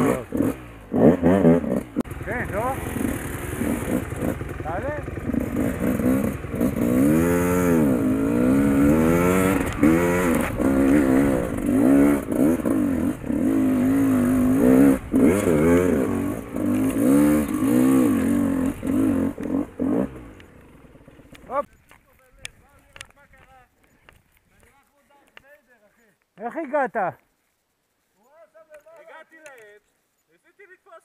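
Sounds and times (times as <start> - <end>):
dirt bike engine revving: 0.0 - 21.5.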